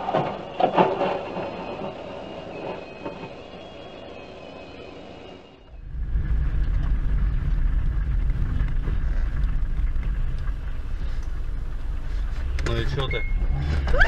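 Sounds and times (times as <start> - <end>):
car road and engine rumble: 0.0 - 14.0.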